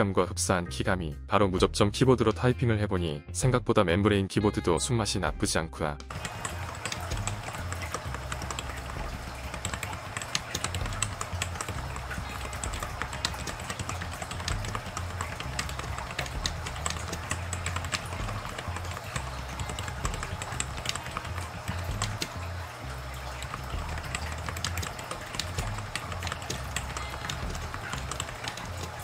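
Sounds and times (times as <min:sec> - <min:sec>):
keyboard typing: 0:06.0 - 0:29.0.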